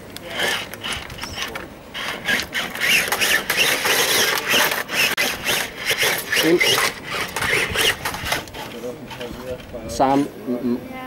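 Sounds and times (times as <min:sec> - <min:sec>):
electric motor whining: 0:00.3 - 0:08.7.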